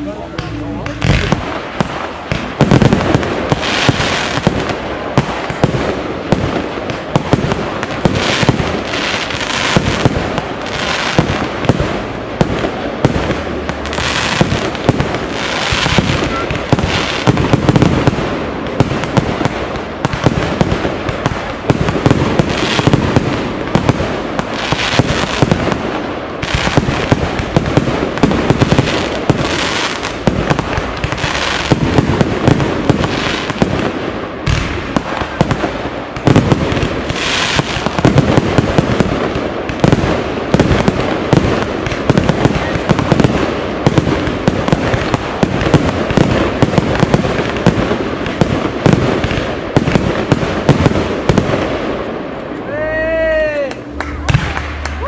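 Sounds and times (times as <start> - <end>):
firework crackling: 0.0 - 55.0.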